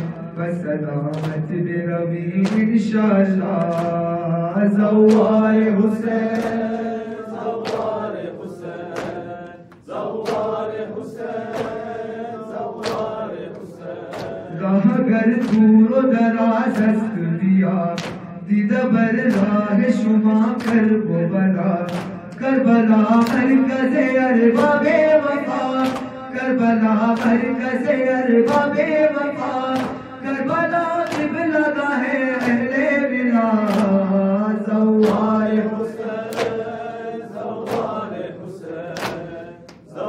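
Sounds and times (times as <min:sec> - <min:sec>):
crowd singing a refrain: 0:00.0 - 0:40.0
men chanting a lament: 0:00.0 - 0:40.0
sharp slaps: 0:01.1 - 0:01.6, 0:02.3 - 0:04.2, 0:05.0 - 0:05.6, 0:06.2 - 0:14.6, 0:15.2 - 0:16.0, 0:16.6 - 0:17.2, 0:17.9 - 0:18.6, 0:19.2 - 0:21.0, 0:21.8 - 0:23.7, 0:24.5 - 0:26.4, 0:27.0 - 0:31.6, 0:32.2 - 0:33.0, 0:33.6 - 0:34.1, 0:35.0 - 0:40.0.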